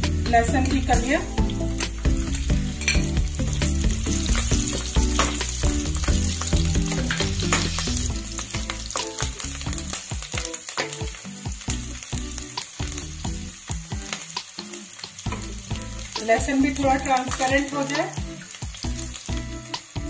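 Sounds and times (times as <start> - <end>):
garlic sizzling in hot oil: 0.0 - 20.0
spatula scraping and tapping pan: 2.3 - 9.4.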